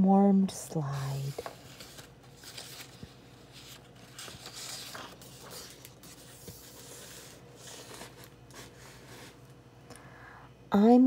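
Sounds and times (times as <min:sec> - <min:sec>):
book page turning: 0:00.9 - 0:09.5.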